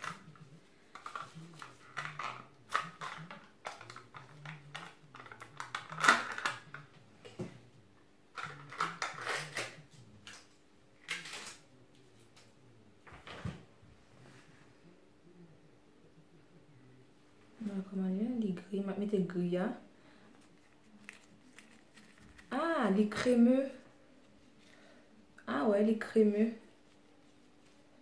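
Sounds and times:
hands handling plastic jar: 20.4 - 22.5.

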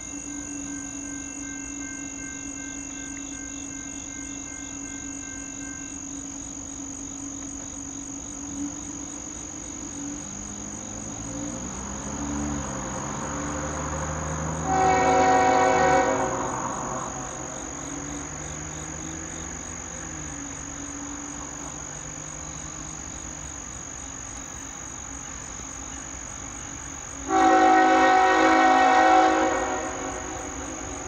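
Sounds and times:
locomotive air horn: 0.0 - 6.2, 14.6 - 17.6, 27.2 - 31.0.

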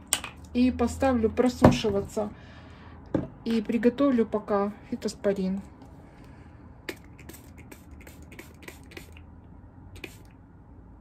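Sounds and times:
spray bottle hissing sprays: 6.9 - 9.2, 10.0 - 10.3.

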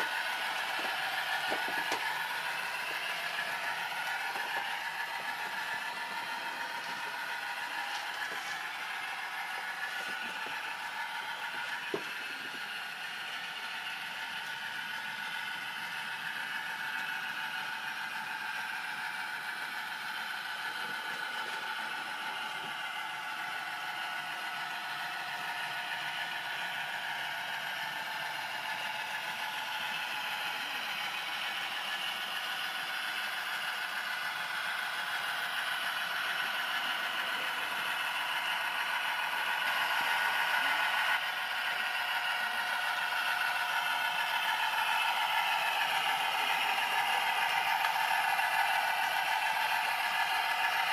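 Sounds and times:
wheels rattling over track joints: 0.0 - 17.2.

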